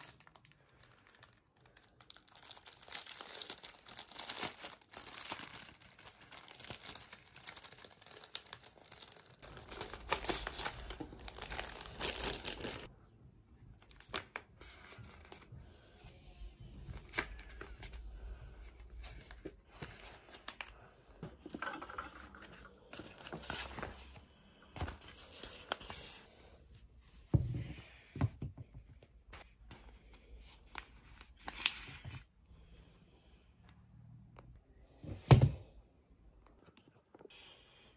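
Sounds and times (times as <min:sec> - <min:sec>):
packaging crinkling and tearing: 0:00.0 - 0:12.9.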